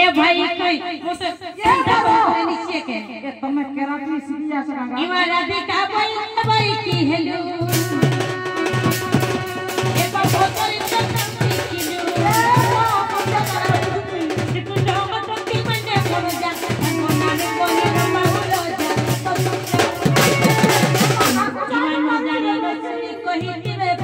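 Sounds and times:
woman singing into microphone: 0.0s - 24.0s
drum struck in fast beat: 6.3s - 21.8s.

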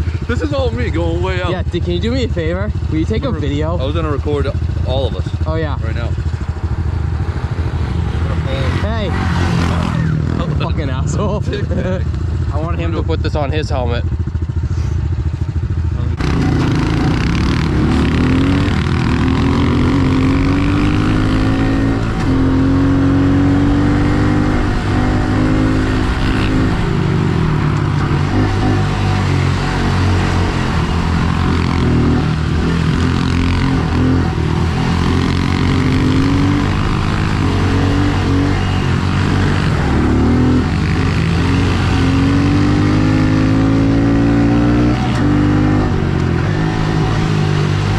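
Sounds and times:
small motorbike engine revving: 16.2s - 47.9s.

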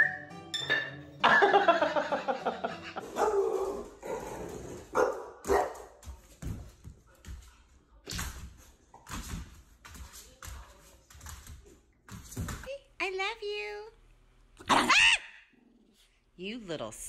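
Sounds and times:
dog barking and yipping: 3.1s - 3.9s, 4.9s - 5.8s, 14.7s - 15.4s.

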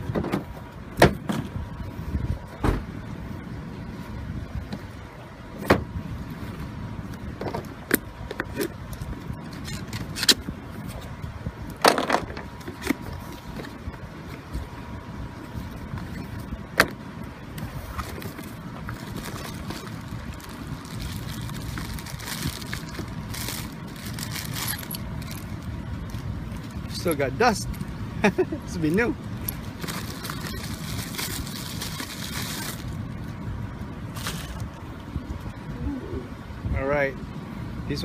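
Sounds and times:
steady low rumble: 0.0s - 38.0s
plastic bag crinkling: 19.0s - 26.2s, 29.8s - 33.0s.

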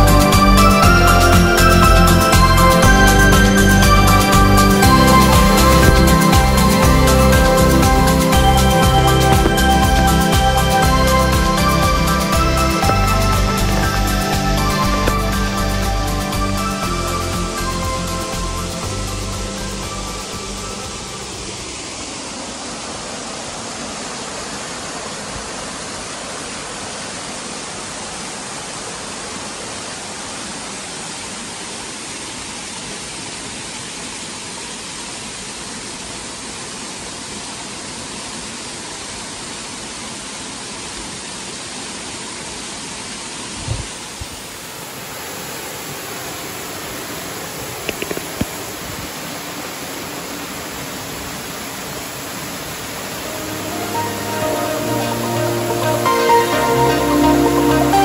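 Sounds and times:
waterfall rushing: 0.0s - 58.0s
low thump: 5.4s - 7.0s
faint clicks: 47.8s - 48.6s.

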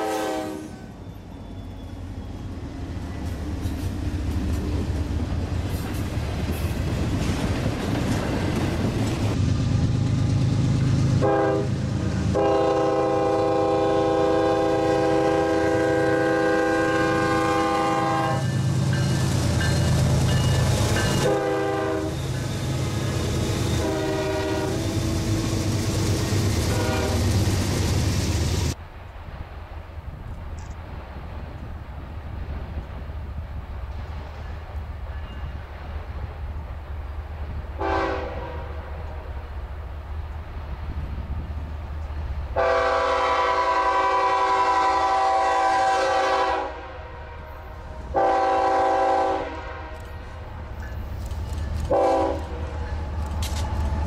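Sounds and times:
locomotive air horn blasts: 0.0s - 1.0s, 11.2s - 18.6s, 21.1s - 25.5s, 26.6s - 27.4s, 37.8s - 39.3s, 42.6s - 50.2s, 51.9s - 52.9s
freight train rumbling on rails: 0.0s - 54.0s.

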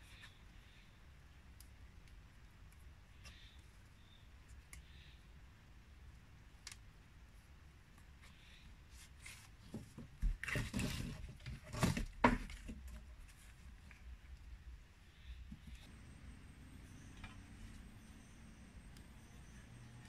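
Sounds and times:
hands scraping and rustling on wood: 8.2s - 14.0s.

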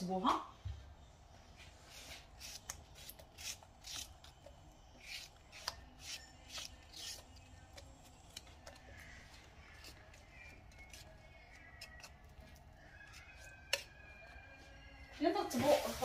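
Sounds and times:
vegetable slices brushing: 1.9s - 4.3s.

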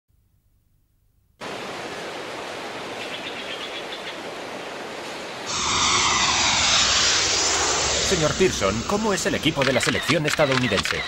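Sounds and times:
steady rushing noise: 5.5s - 10.0s.

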